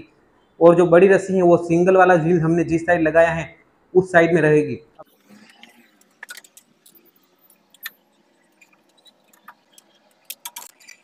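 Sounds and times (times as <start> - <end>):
metal rods and fittings clicking: 5.2 - 11.0.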